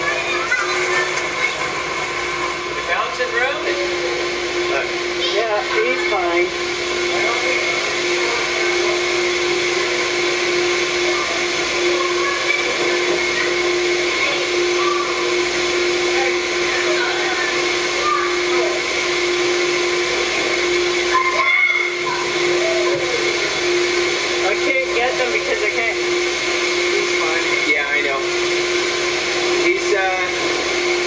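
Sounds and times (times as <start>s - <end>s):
constant hum tone: 0.0s - 31.0s
faint children shouting: 21.1s - 23.0s.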